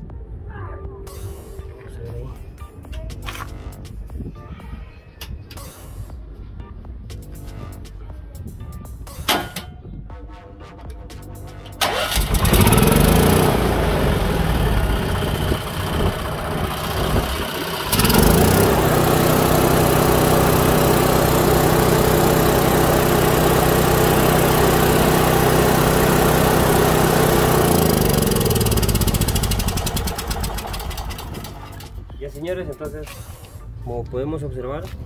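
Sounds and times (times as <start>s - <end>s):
generator engine starting and running: 11.5s - 32.2s.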